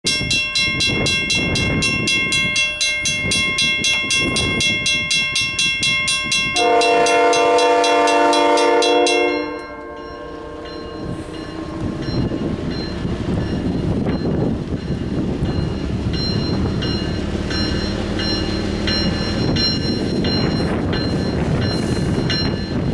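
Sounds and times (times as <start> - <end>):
crossing bell ringing: 0.0 - 22.9
freight train rumble: 0.0 - 22.9
locomotive air horn blast: 6.5 - 12.0.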